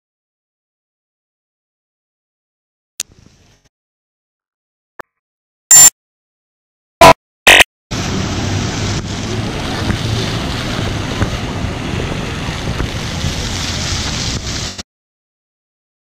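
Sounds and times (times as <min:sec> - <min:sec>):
loud tone-like blip: 0:05.7 - 0:05.9, 0:07.0 - 0:07.7
fountain water splashing: 0:08.0 - 0:14.8
wind on microphone: 0:08.8 - 0:14.8.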